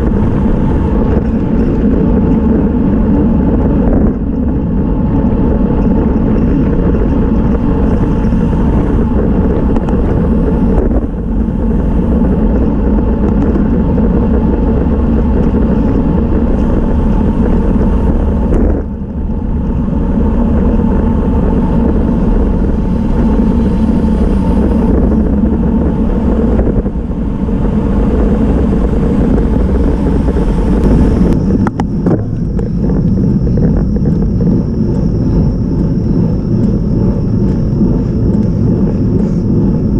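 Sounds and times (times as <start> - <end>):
wind rumble on microphone: 0.0 - 39.9
bicycle clicks: 5.3 - 19.0.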